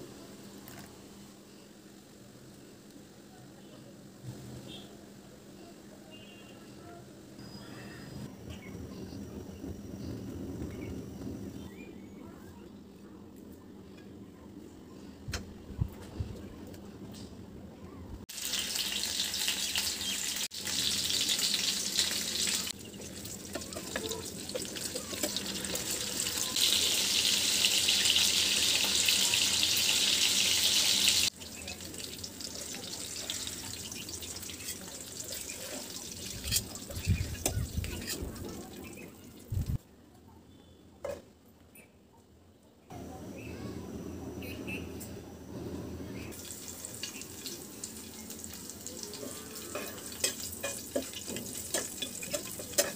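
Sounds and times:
fish sizzling in hot oil: 0:18.3 - 0:39.0, 0:46.3 - 0:52.9.

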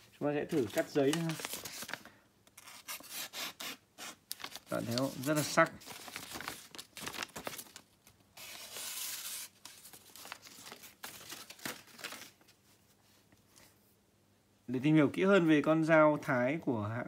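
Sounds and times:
knife slicing paper: 0:08.4 - 0:10.4.

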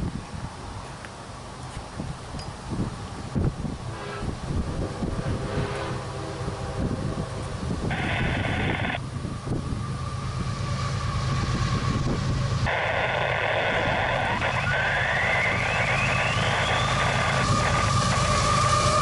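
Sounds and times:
diesel locomotive engine rumble: 0:00.0 - 0:19.0
locomotive air horn: 0:03.9 - 0:08.7, 0:15.3 - 0:19.0.

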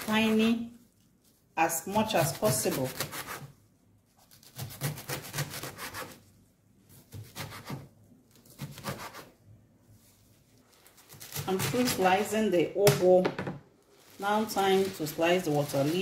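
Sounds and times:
knife slicing leaves on wooden board: 0:02.2 - 0:03.5, 0:04.3 - 0:06.2.

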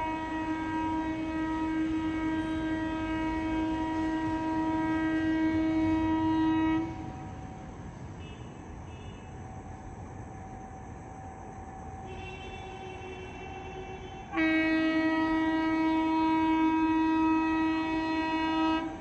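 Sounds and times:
locomotive horn blast: 0:00.0 - 0:07.3, 0:12.1 - 0:19.0
train low rumble: 0:00.0 - 0:19.0.

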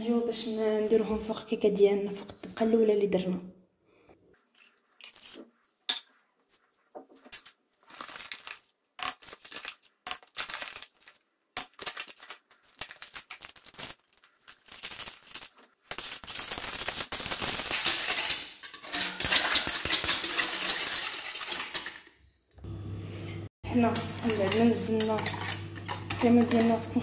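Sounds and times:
wire whisk beating in pan: 0:17.6 - 0:22.0, 0:23.7 - 0:27.0.

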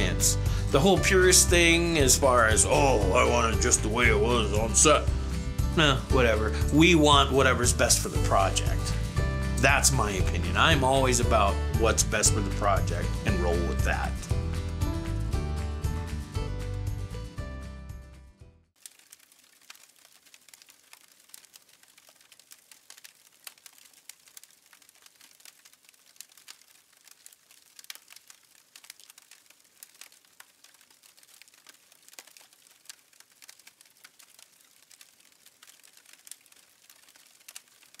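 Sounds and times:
fire crackling: 0:00.0 - 0:17.4, 0:18.7 - 0:38.0.

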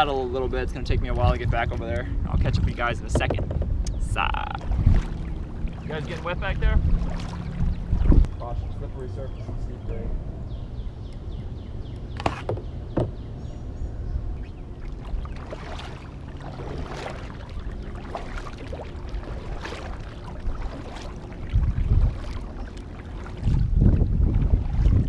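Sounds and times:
wind rumble on microphone: 0:00.0 - 0:25.0
kayak paddle swishing through water: 0:04.6 - 0:08.3, 0:14.4 - 0:25.0.

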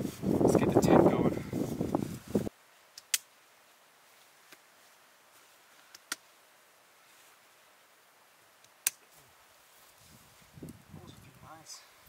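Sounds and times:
faint steady hiss: 0:00.0 - 0:12.0
tent poles and clips clicking: 0:02.9 - 0:03.3, 0:05.7 - 0:06.3, 0:08.6 - 0:09.2.

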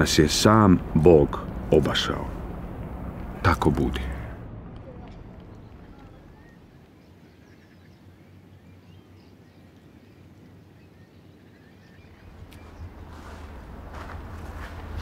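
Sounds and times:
steady low rumble: 0:00.0 - 0:09.4, 0:12.0 - 0:15.0.

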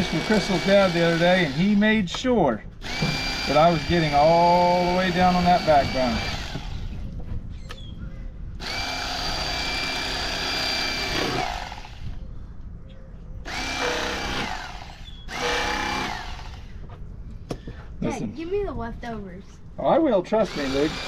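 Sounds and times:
electric knife motor whine: 0:00.0 - 0:01.8, 0:02.8 - 0:07.0, 0:08.6 - 0:12.1, 0:13.5 - 0:16.8, 0:20.5 - 0:21.0.

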